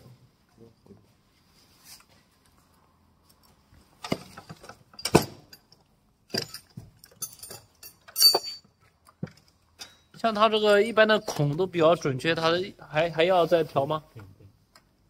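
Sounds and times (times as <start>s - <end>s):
metallic clicks of hose fittings: 4.9s - 10.2s.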